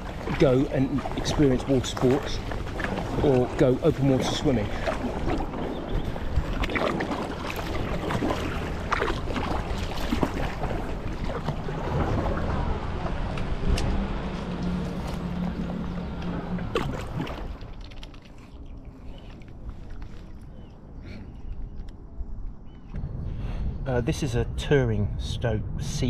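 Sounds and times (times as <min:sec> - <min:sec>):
wind on microphone: 0:00.0 - 0:14.4, 0:20.1 - 0:26.0
paddle splashing: 0:00.0 - 0:20.9
water sloshing along hull: 0:00.0 - 0:22.9
low steady hum: 0:00.0 - 0:26.0.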